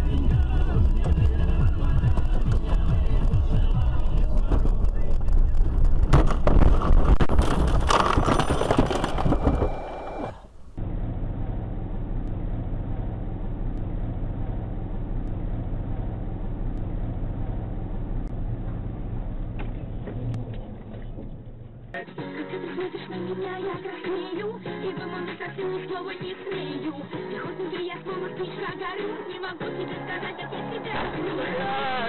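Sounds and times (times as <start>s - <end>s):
car engine running: 0.0s - 22.0s
road hum: 0.0s - 22.2s.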